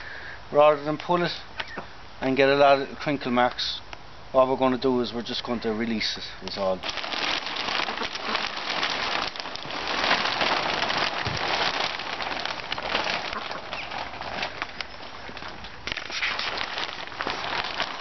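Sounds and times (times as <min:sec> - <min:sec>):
plastic sheet crinkling and rustling: 0:06.6 - 0:18.0.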